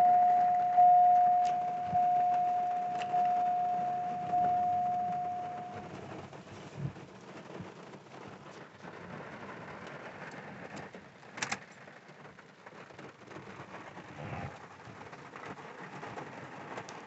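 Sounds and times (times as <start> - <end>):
steady high tone: 0.0 - 5.9
steady rain falling: 0.0 - 17.0.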